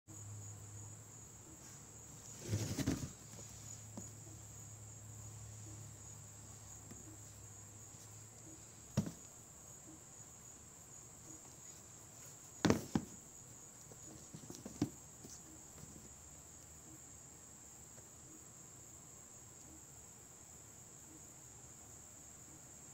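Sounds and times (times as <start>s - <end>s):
shoebox rustling: 2.3s - 3.5s, 12.6s - 13.2s
handling knocks: 2.4s - 4.1s, 8.9s - 9.3s, 12.6s - 13.2s, 14.0s - 16.0s.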